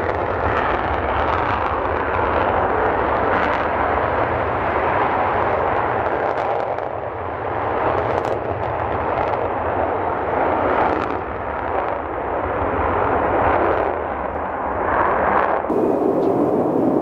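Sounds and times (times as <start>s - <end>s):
jet engine roar with crackle: 0.0s - 17.0s.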